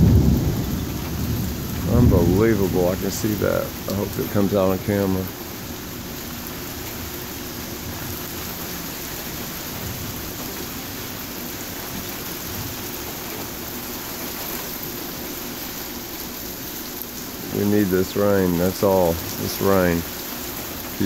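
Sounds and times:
steady rain falling: 0:00.0 - 0:21.0.

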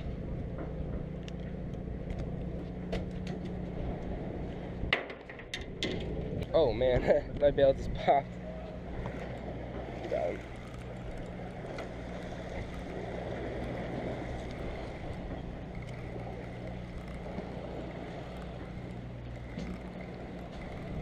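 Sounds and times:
boat motor droning: 0:00.0 - 0:21.0
water noise: 0:00.0 - 0:21.0
wind on microphone: 0:05.6 - 0:21.0.

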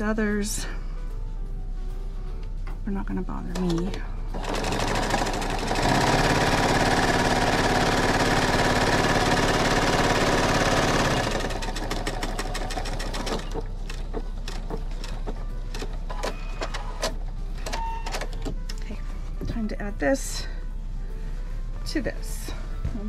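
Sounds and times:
sewing machine stitching: 0:03.6 - 0:17.1.

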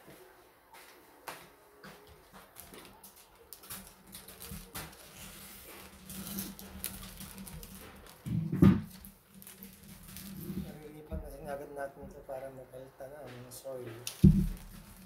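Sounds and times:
plastic sleeve crinkling: 0:02.4 - 0:11.6, 0:14.0 - 0:15.0.

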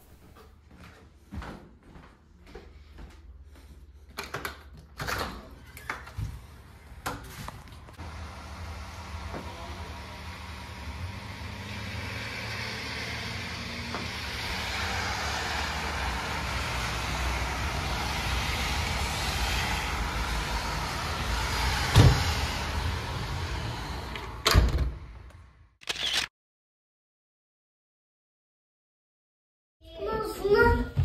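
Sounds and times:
truck engine running: 0:07.9 - 0:24.2.

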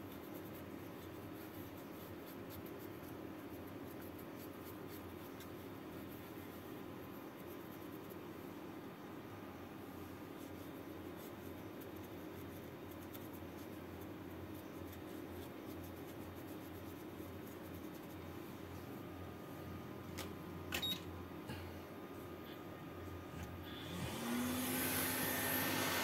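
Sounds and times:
cotton swab scratchy rubbing: 0:00.0 - 0:08.3, 0:10.1 - 0:18.9
steady low hum: 0:00.0 - 0:26.0.

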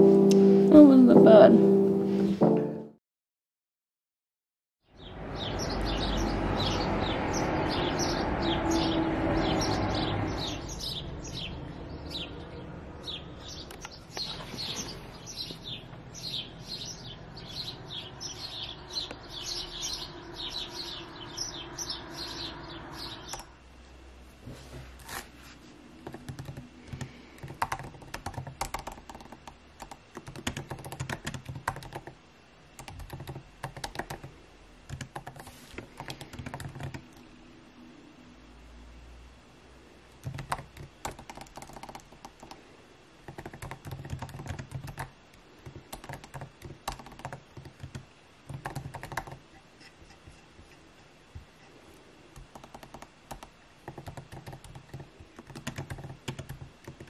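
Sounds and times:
small birds singing: 0:04.8 - 0:23.6
rushing background noise: 0:05.4 - 0:24.8
laptop keyboard typing: 0:22.9 - 0:23.5, 0:26.0 - 0:32.2, 0:32.8 - 0:37.3, 0:40.2 - 0:49.6, 0:51.3 - 0:57.0.

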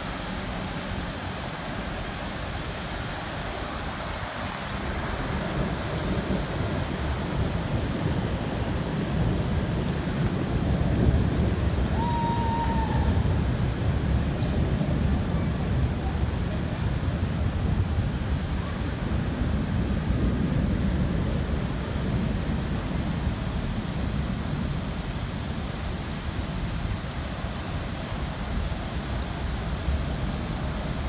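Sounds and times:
heavy rain pouring: 0:00.0 - 0:31.0
low thunder rumbling: 0:05.5 - 0:24.7.

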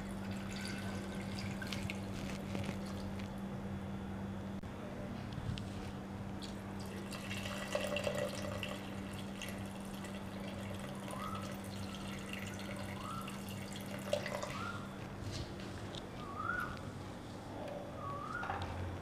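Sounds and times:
steady low hum: 0:00.0 - 0:19.0
water pouring and splashing: 0:00.1 - 0:03.3
faint rising chirp: 0:16.2 - 0:17.0, 0:17.8 - 0:18.6.

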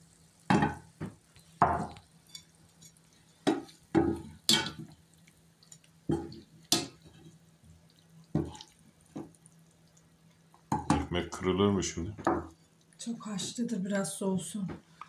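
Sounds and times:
water splashing and dripping: 0:07.9 - 0:10.7.

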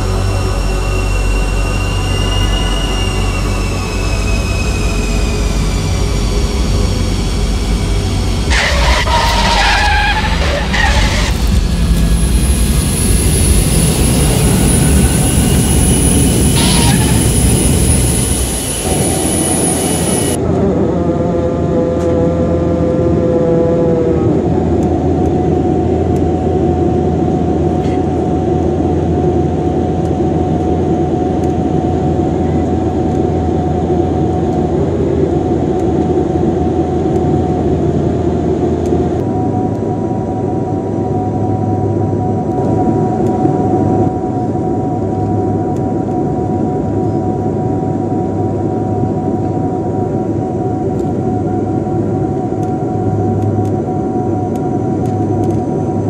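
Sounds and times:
short rising whine: 0:00.0 - 0:23.0
jet airliner roar: 0:00.0 - 0:56.0
turboprop engine drone: 0:00.0 - 0:56.0.

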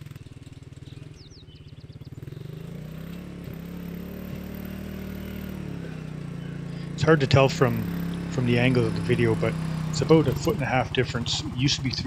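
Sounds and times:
quad bike engine running: 0:00.0 - 0:12.0.

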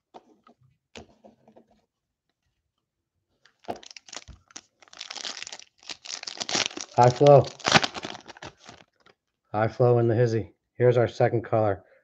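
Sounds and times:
plastic wrapper crinkling: 0:03.4 - 0:09.2.

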